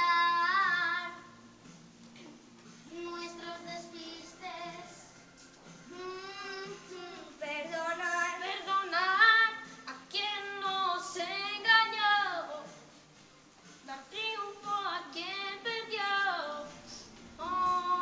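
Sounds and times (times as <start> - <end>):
musical accompaniment: 0.0 - 18.0
child singing into a microphone: 2.9 - 5.0, 5.9 - 9.5.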